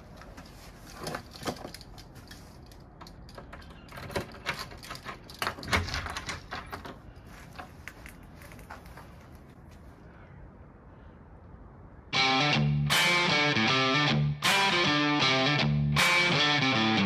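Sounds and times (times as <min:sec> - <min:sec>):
keys rattling: 0:00.4 - 0:07.0
key turning in a lock: 0:01.6 - 0:07.0
door latch and door opening: 0:03.3 - 0:07.0.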